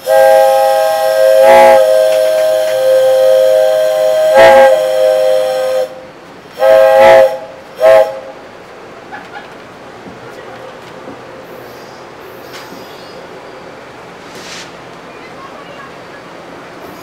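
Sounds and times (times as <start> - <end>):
train horn blasts: 0.0 - 8.4.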